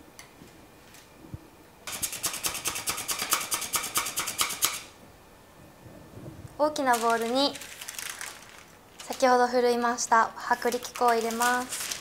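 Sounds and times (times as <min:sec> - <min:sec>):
flour sifter rasping rattle: 0:06.8 - 0:09.3.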